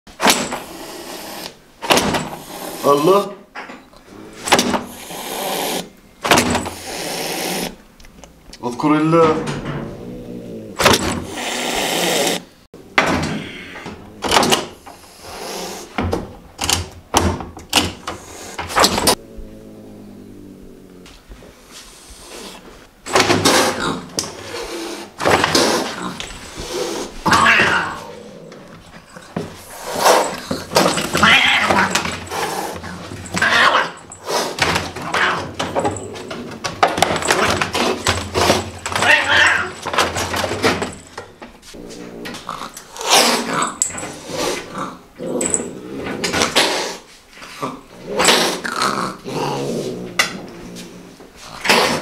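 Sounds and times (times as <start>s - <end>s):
cat hissing: 0.6s - 1.6s, 2.3s - 3.0s, 4.3s - 6.0s, 6.7s - 7.8s, 10.0s - 12.5s, 15.0s - 16.0s, 23.4s - 28.5s, 29.6s - 35.4s, 42.5s - 45.0s
angry cat crying: 31.1s - 32.0s, 39.0s - 39.8s.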